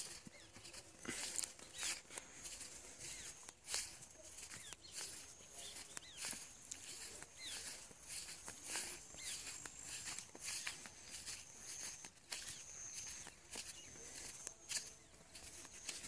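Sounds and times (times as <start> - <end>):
footsteps on dirt and grass: 0.0 - 16.0
small birds chirping: 0.0 - 16.0.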